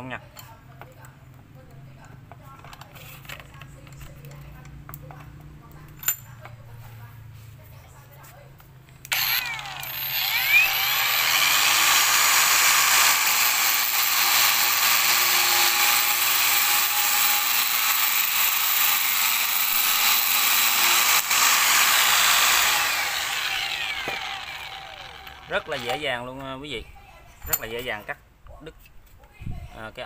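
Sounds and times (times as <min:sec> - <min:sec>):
angle grinder cutting plastic: 0:09.1 - 0:26.1.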